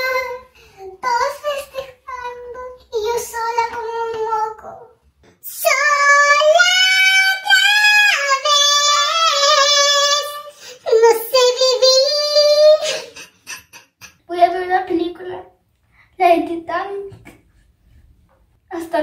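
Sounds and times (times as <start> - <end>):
girl singing unaccompanied: 0.0 - 13.3.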